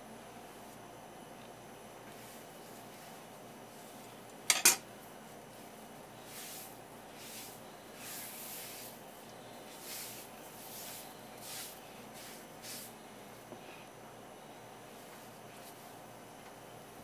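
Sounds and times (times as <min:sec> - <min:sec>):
bowl sliding and brushing: 0:02.0 - 0:04.2, 0:05.2 - 0:13.9, 0:14.8 - 0:16.0.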